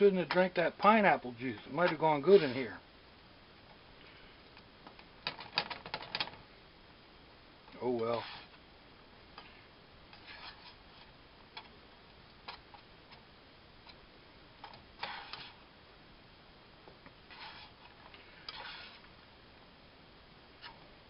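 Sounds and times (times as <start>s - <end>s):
spatula scraping frying pan: 2.2s - 2.7s, 8.1s - 8.6s, 10.1s - 11.1s, 15.0s - 15.6s, 17.3s - 19.1s.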